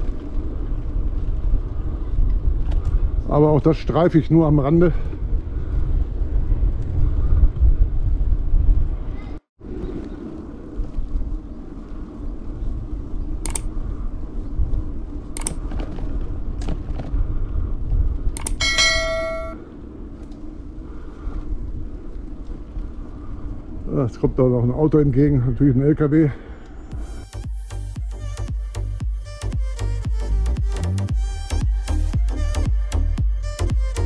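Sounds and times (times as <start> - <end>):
bicycle wind and road rumble: 0.0 - 34.0
sharp clicks: 13.4 - 13.7, 18.4 - 18.6
bicycle bell ringing: 18.6 - 19.6.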